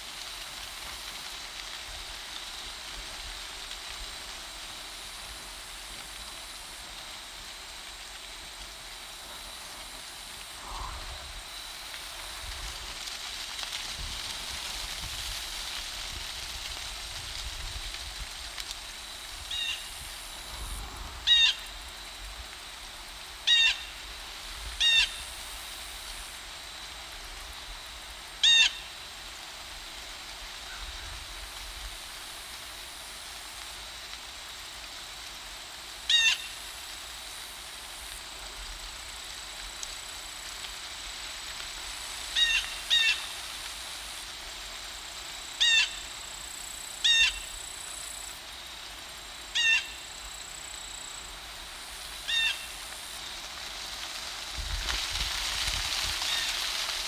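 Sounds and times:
faint hiss: 0.0 - 57.0
bird calling: 49.6 - 50.0.

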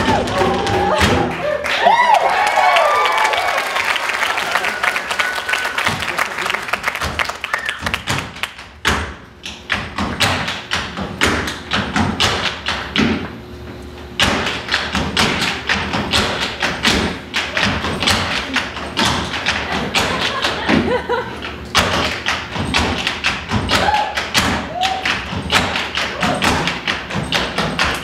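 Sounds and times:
tap shoes on stage floor: 5.8 - 13.3, 14.2 - 28.0.

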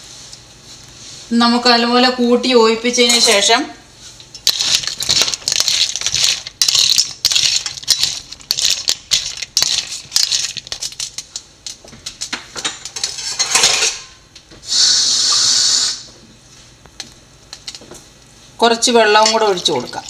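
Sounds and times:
shells clattering in steel pot: 4.4 - 11.3, 12.8 - 14.1
steady hiss: 14.6 - 16.2.

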